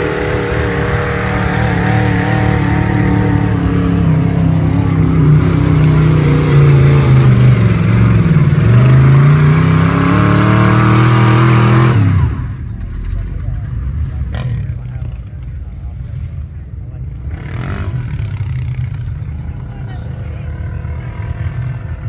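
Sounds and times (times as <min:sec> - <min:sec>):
buggy engine revving hard: 0:00.0 - 0:12.7, 0:17.2 - 0:19.0.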